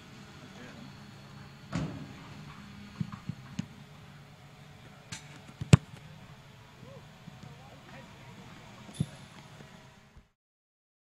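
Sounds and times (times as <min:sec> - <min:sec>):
boot kicking football: 0:05.6 - 0:06.0.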